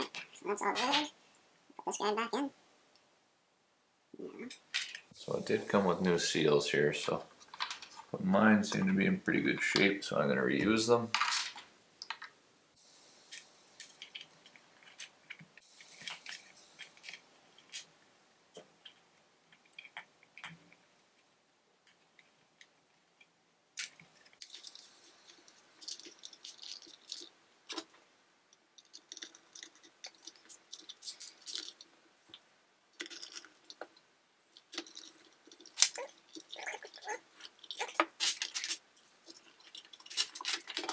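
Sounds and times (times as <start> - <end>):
small plastic parts clicking: 21.8 - 32.4, 33.0 - 40.9.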